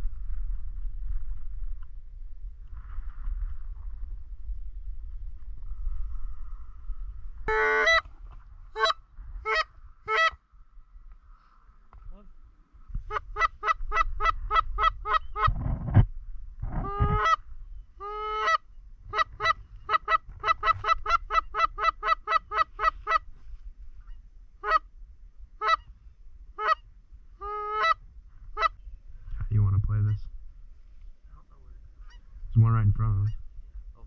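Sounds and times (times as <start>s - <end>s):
low rush: 0.0s - 7.8s
goose clucking: 7.5s - 8.0s, 18.0s - 23.3s, 27.4s - 28.0s.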